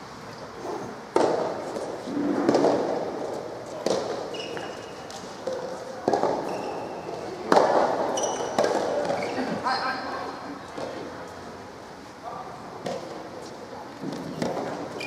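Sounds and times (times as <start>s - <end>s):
rackets hitting ball: 1.1s - 9.3s, 12.8s - 13.2s, 14.0s - 15.0s
shoes squeaking on court: 3.7s - 7.4s, 8.0s - 9.6s, 14.1s - 15.0s.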